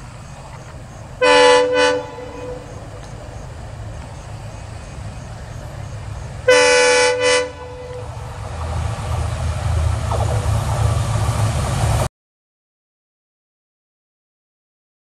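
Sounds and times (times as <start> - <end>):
train engine and wheel rumble: 0.0 - 12.1
locomotive horn blast: 1.2 - 3.1, 6.4 - 8.6.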